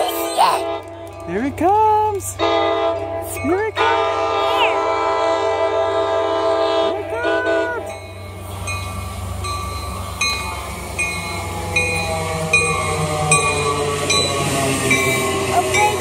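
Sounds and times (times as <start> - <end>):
train rumbling: 0.0 - 16.0
train horn blast: 2.4 - 7.9.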